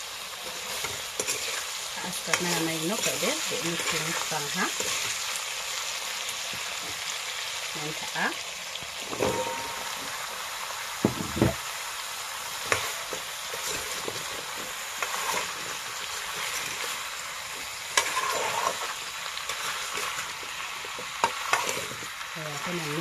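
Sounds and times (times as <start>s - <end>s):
food sizzling in wok: 0.0s - 23.0s
metal ladle scraping pan: 0.4s - 5.2s, 9.0s - 10.2s, 12.7s - 17.0s, 17.6s - 22.2s.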